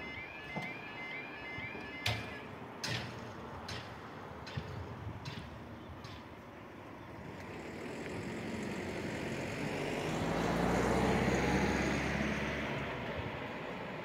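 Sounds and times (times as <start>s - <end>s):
vehicle passing by: 7.2s - 14.0s.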